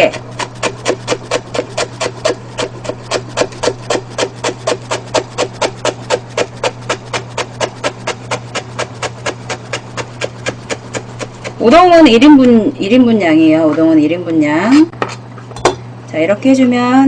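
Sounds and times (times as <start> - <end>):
knife chopping on plastic board: 0.0 - 12.6
low steady hum: 0.0 - 17.0.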